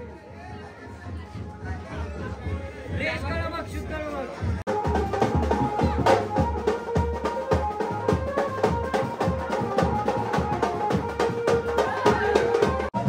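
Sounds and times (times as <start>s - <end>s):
quick drum beat: 1.0s - 13.0s.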